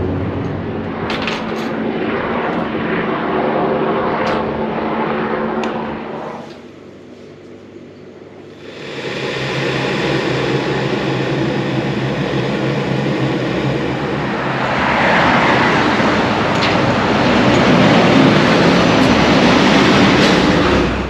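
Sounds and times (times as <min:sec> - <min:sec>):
road traffic passing: 0:00.0 - 0:07.2, 0:08.4 - 0:21.0
electric kettle heating up: 0:08.6 - 0:14.5.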